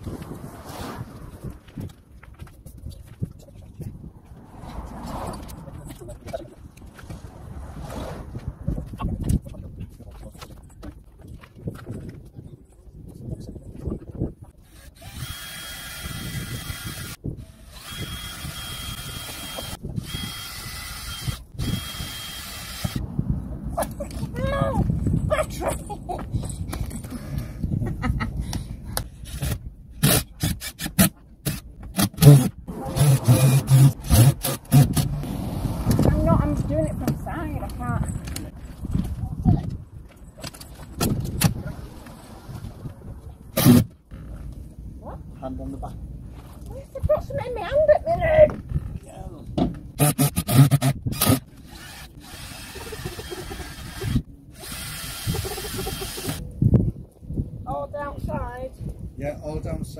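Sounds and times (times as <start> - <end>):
power drill on sheet metal: 14.7 - 23.0, 31.5 - 35.1, 50.0 - 56.4.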